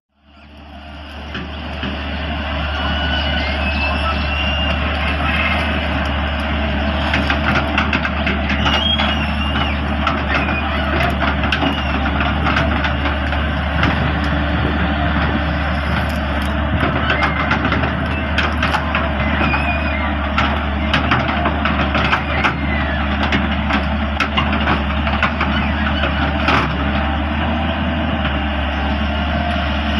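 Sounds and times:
diesel engine running under load: 0.1 - 29.9
branches cracking and snapping: 4.4 - 27.1.

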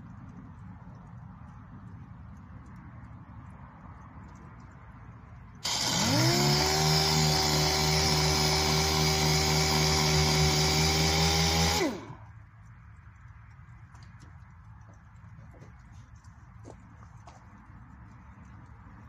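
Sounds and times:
random orbital sander whining: 5.6 - 12.3.

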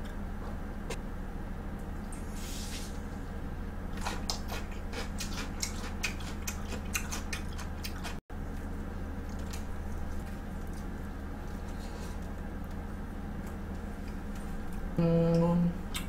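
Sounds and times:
low electrical hum: 0.0 - 16.0
chewing crunchy crust: 3.9 - 14.9.

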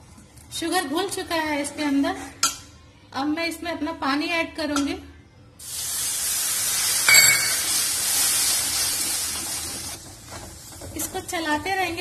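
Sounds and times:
water sizzling in hot fat: 5.6 - 10.9
ladle clinking against pan: 7.1 - 7.6.

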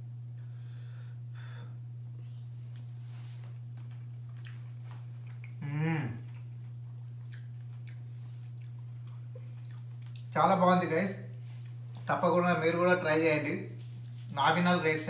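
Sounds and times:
steady low hum: 0.0 - 15.0
person chewing food: 4.2 - 10.4
soft mouth clicks: 7.2 - 10.3.

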